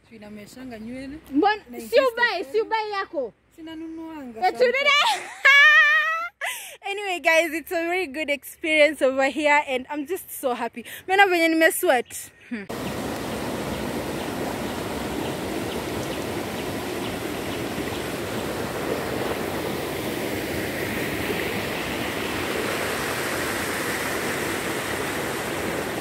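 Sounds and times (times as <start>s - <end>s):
river rushing: 12.7s - 26.0s.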